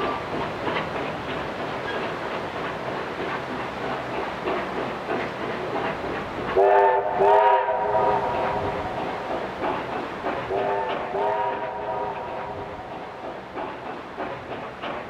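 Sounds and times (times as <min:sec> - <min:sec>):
train clatter and chuffing: 0:00.0 - 0:15.0
steam locomotive chime whistle: 0:06.6 - 0:08.5, 0:10.5 - 0:12.3.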